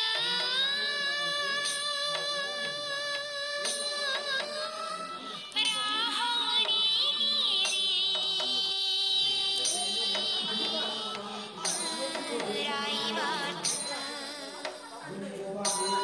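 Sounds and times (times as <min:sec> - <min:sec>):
light percussion strikes: 0:00.0 - 0:05.0, 0:09.5 - 0:12.9, 0:13.5 - 0:16.0.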